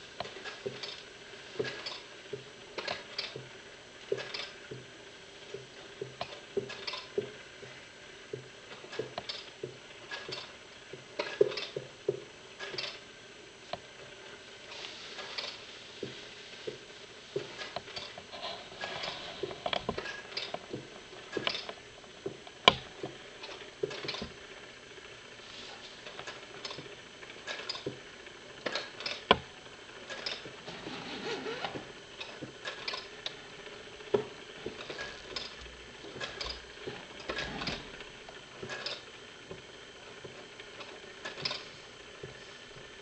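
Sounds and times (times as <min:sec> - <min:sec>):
clockwork mechanism clicking: 0:00.2 - 0:04.7, 0:05.5 - 0:07.7, 0:26.0 - 0:30.6, 0:31.4 - 0:43.0.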